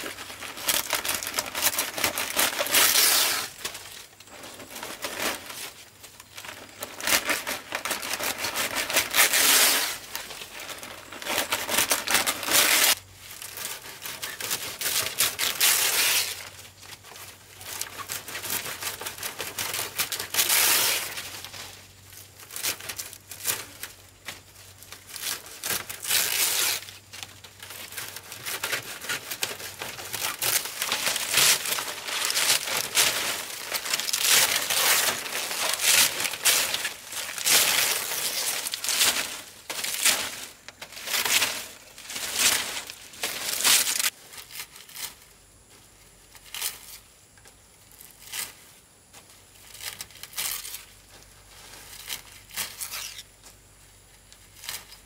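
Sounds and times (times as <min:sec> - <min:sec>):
palm fronds rustling: 0:00.0 - 0:55.0.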